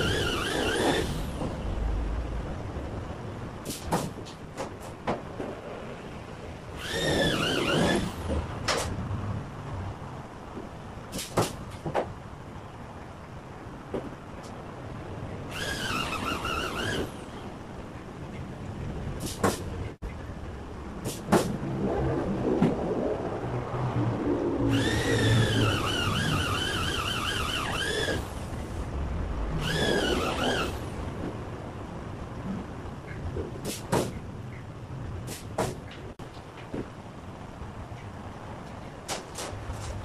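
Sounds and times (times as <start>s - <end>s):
power drill whining: 0.0s - 1.3s, 6.8s - 8.2s, 15.5s - 17.1s, 24.7s - 28.2s, 29.6s - 30.8s
low workshop rumble: 0.0s - 40.0s.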